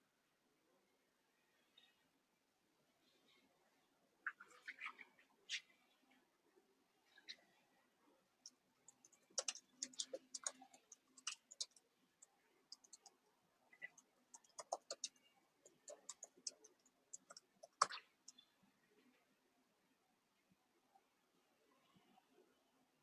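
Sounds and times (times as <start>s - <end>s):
keyboard typing: 8.9s - 13.2s, 13.8s - 18.4s.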